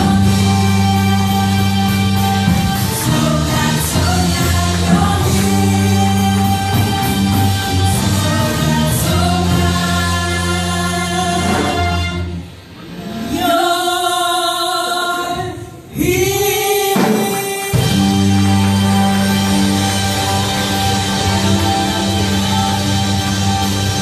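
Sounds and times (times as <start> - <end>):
women singing gospel: 0.0 - 12.1
church band playing: 0.0 - 24.0.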